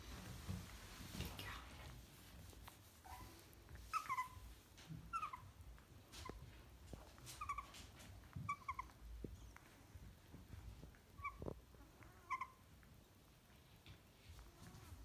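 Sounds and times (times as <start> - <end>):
dog whimpering: 3.0 - 5.6, 7.2 - 9.6, 11.1 - 12.7.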